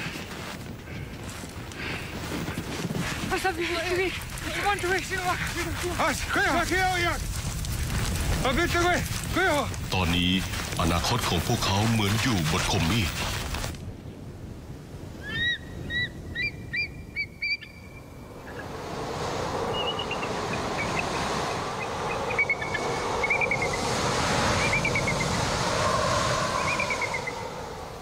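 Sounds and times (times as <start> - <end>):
steady rushing wind noise: 0.0 - 17.0, 18.0 - 28.0
high chirping bird calls: 15.2 - 18.6.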